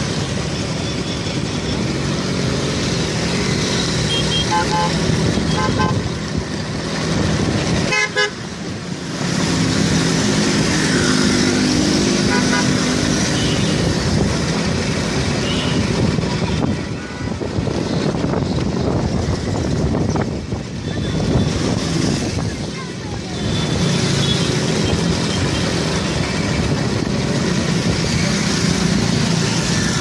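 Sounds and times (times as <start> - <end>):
traffic engine and rushing noise: 0.0 - 30.0
vehicle horn toots: 4.1 - 6.0.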